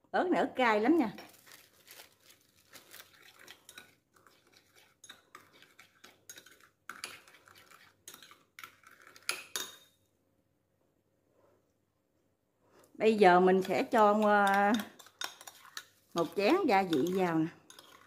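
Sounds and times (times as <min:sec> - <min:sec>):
metal spoon stirring sauce in bowl: 0:02.0 - 0:10.0, 0:13.2 - 0:18.0.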